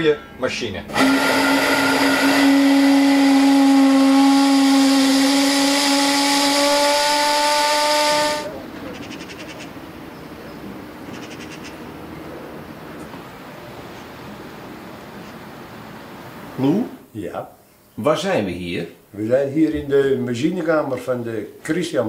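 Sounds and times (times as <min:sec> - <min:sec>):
ship's steam whistle blast: 0:00.9 - 0:08.6
steam hissing: 0:00.9 - 0:09.5.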